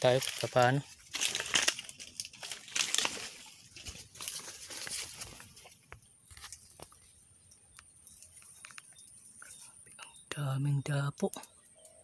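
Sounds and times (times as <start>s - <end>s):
leaves and twigs crackling underfoot: 0.0s - 12.0s.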